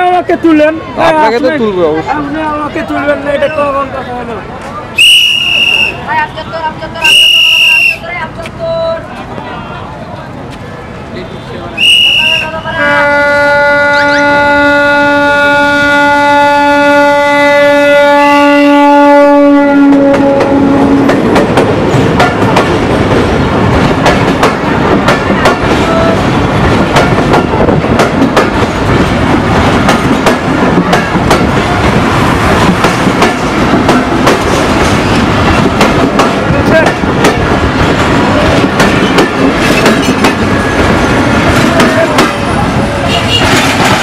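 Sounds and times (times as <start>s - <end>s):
shrill whistle: 5.0s - 6.0s, 7.0s - 8.1s, 11.8s - 12.6s
diesel locomotive horn blast: 11.8s - 21.1s, 43.0s - 43.6s
train wheels clacking over rail joints: 19.9s - 44.0s.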